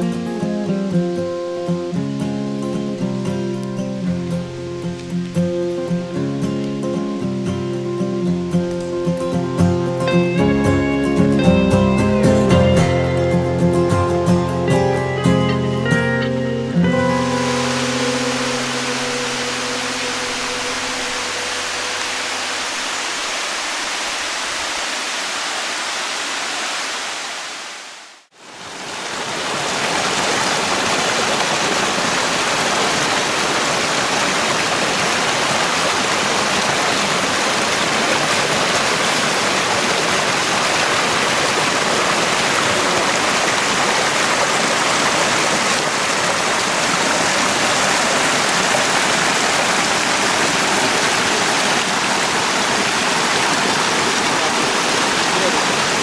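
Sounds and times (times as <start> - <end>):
water rushing over rocks: 16.8 - 56.0.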